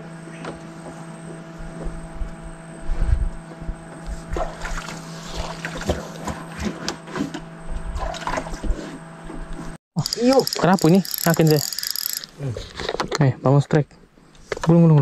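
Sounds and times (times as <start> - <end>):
rod and reel knocks and clicks: 10.0 - 13.0.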